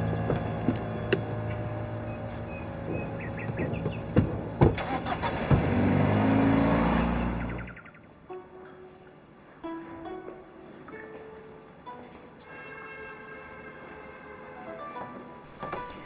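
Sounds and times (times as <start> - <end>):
car engine accelerating: 0.0 - 7.8.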